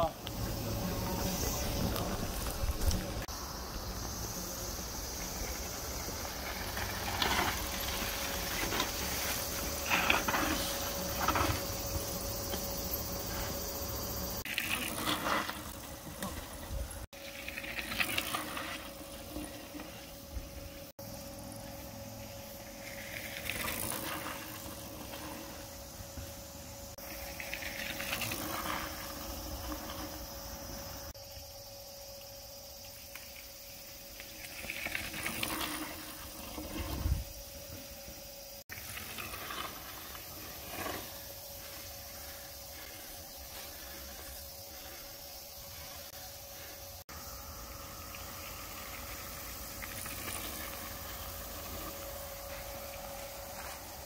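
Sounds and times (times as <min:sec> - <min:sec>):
bike tyres scrubbing through dirt: 0:00.0 - 0:31.2, 0:34.0 - 0:54.0.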